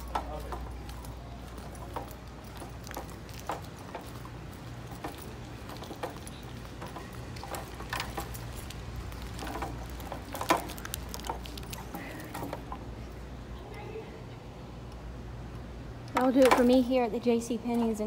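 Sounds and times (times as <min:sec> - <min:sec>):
footsteps on tiled floor: 0:00.0 - 0:12.7
ventilation hum: 0:00.0 - 0:18.0.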